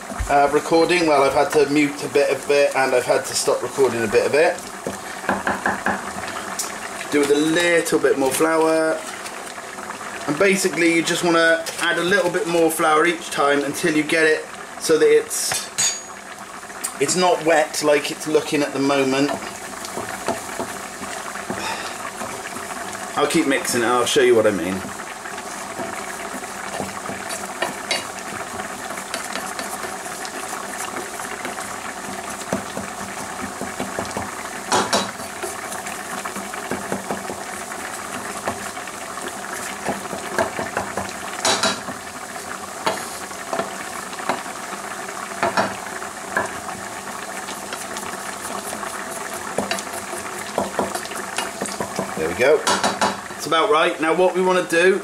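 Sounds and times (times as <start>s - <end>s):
roux sizzling in a pan: 0.0s - 55.0s
spoon knocking on pan: 4.8s - 6.2s, 19.2s - 20.8s, 26.7s - 28.1s, 32.4s - 35.6s, 36.7s - 37.4s, 39.8s - 42.0s, 45.4s - 46.6s, 49.5s - 49.9s, 50.5s - 53.3s.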